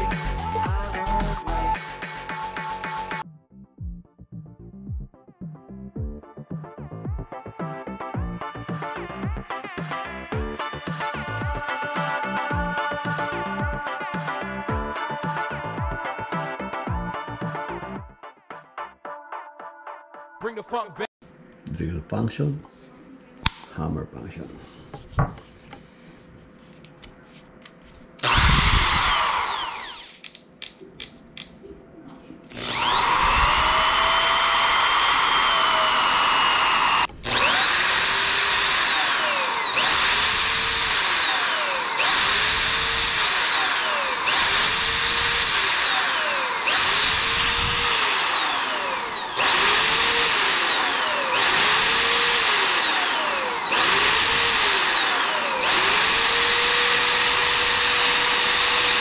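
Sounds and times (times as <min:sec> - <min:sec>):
drill clicks: 0:27.6 - 0:31.6, 0:32.5 - 0:59.0
impact drill whining: 0:28.2 - 0:30.3, 0:32.5 - 0:59.0.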